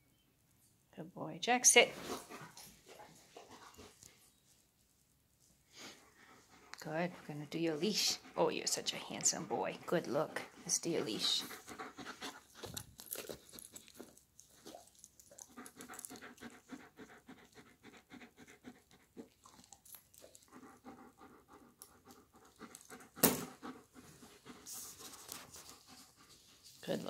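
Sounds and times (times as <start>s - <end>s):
dog panting fast: 5.8s - 27.0s.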